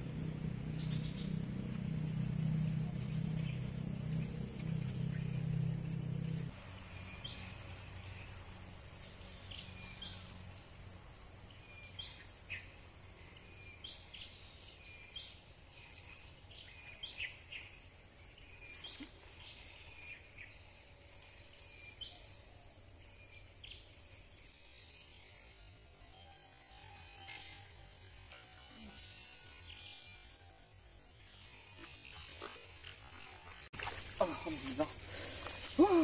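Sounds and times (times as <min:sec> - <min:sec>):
high-pitched insect drone: 0:00.0 - 0:06.5
low droning sound: 0:00.0 - 0:07.5
birds chirping: 0:33.8 - 0:36.0.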